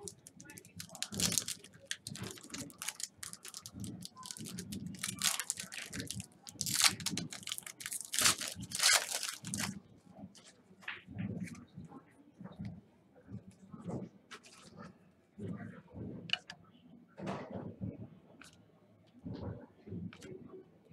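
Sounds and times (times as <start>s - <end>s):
card pack wrapper crinkling: 0.0s - 9.8s.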